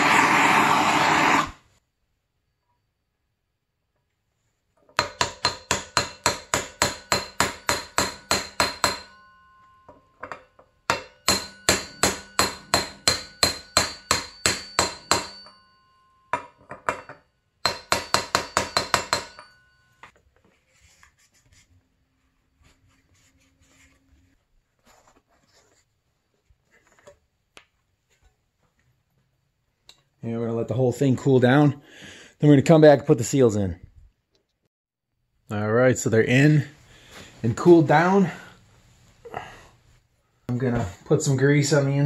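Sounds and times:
hammer striking metal: 0:05.0 - 0:19.8
faint handling sounds: 0:19.8 - 0:30.2.

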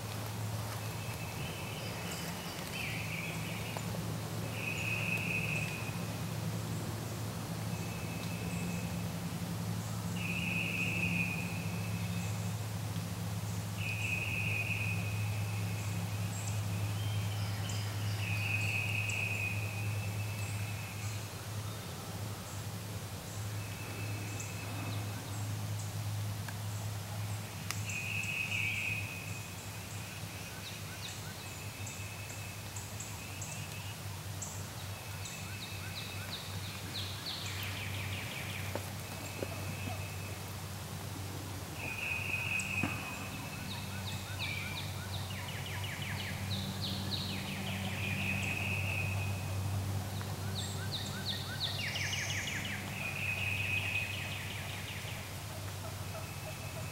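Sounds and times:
songbird chirps: 0:00.0 - 0:07.0, 0:07.6 - 0:09.1, 0:09.8 - 0:56.9.

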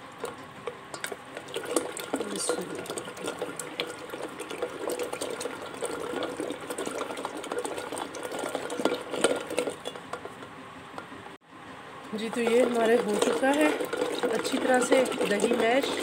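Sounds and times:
yogurt churning and sloshing: 0:00.0 - 0:11.4, 0:12.1 - 0:16.0.

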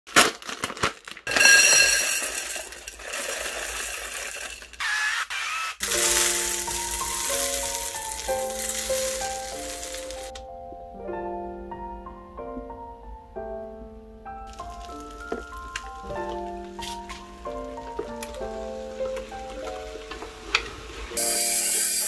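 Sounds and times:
plastic snack bag crinkling: 0:00.1 - 0:10.4, 0:14.5 - 0:21.3
puffed wheat pouring rattle: 0:01.2 - 0:04.8, 0:05.8 - 0:10.3, 0:14.5 - 0:22.0
piano music: 0:05.8 - 0:22.0.

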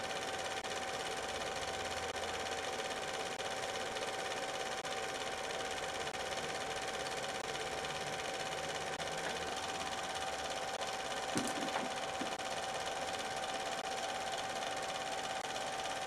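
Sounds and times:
film projector whirring: 0:00.0 - 0:16.0.

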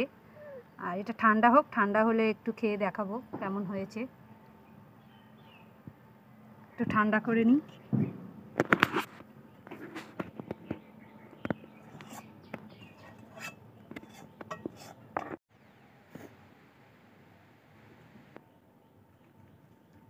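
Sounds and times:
clicks and knocks on metal bowl: 0:13.0 - 0:15.4.

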